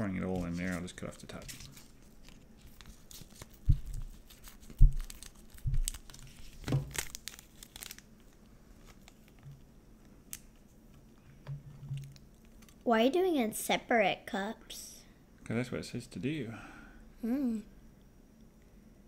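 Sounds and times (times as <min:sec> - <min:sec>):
plastic packet crinkling: 0:00.2 - 0:09.5.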